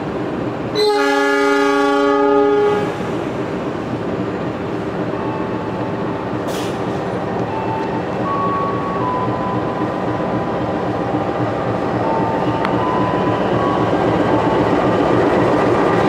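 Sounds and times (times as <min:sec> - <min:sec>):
train rumbling: 0:00.0 - 0:16.0
train horn chord: 0:00.8 - 0:03.0.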